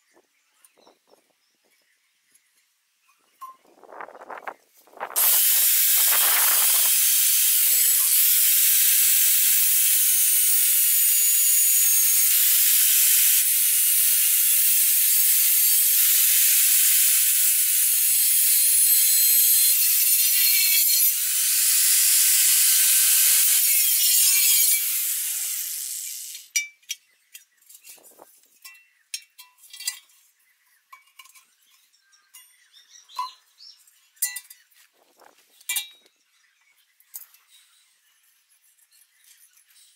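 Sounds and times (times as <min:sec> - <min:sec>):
grinder disc spinning down: 0:05.2 - 0:26.4
angle grinder cutting steel: 0:05.2 - 0:26.5.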